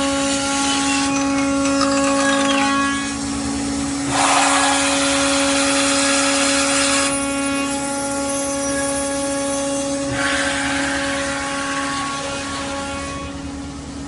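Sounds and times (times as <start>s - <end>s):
spindle whine: 0.0s - 4.8s
hiss of cutting and coolant spray: 4.0s - 13.2s.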